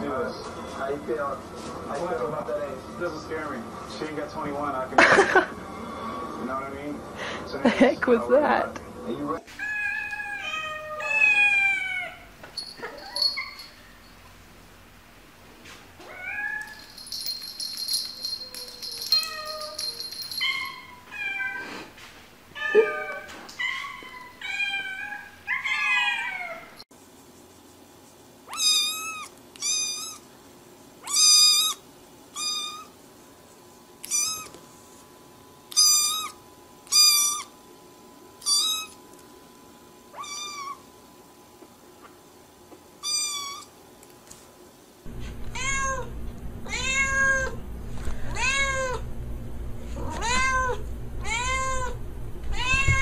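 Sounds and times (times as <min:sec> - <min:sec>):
cat meowing: 0:09.6 - 0:12.3, 0:28.5 - 0:30.2, 0:34.0 - 0:34.6, 0:40.1 - 0:40.8, 0:43.0 - 0:43.7, 0:45.2 - 0:47.6, 0:48.3 - 0:49.1, 0:50.0 - 0:53.0
low hum: 0:45.1 - 0:53.0.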